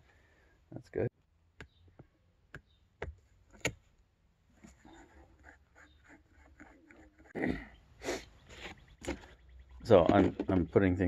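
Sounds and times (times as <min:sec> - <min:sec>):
faint scraping and handling: 0:04.4 - 0:07.4, 0:08.0 - 0:10.8.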